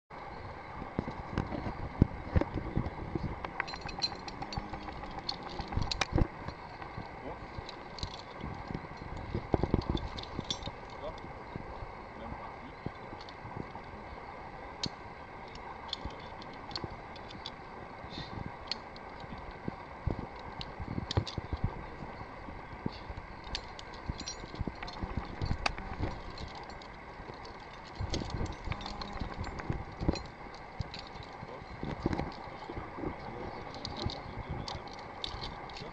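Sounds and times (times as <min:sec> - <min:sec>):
steady background hiss: 0:00.1 - 0:35.9
metal climbing hardware clinking: 0:00.8 - 0:11.7, 0:14.8 - 0:22.3, 0:23.0 - 0:35.9.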